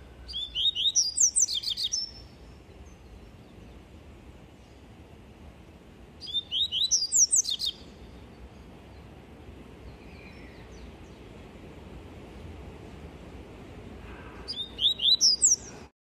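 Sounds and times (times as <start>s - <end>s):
bird singing high sweeping notes: 0.0s - 3.8s, 6.2s - 8.7s, 14.5s - 15.9s.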